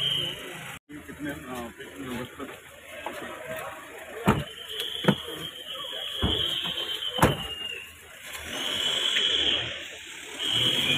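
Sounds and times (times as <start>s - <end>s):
car doors slamming: 4.2s - 5.4s, 6.2s - 7.6s.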